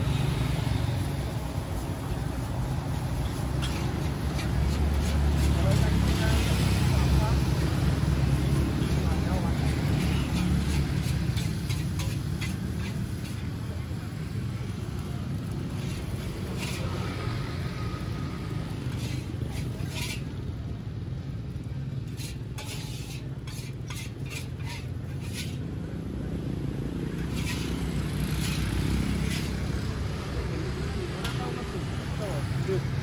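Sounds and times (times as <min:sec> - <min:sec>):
food sizzling: 0:00.1 - 0:20.7, 0:21.8 - 0:25.6, 0:27.2 - 0:32.6
metal spatula scraping wok: 0:03.0 - 0:20.6, 0:21.6 - 0:25.8, 0:27.2 - 0:29.9, 0:31.2 - 0:32.0.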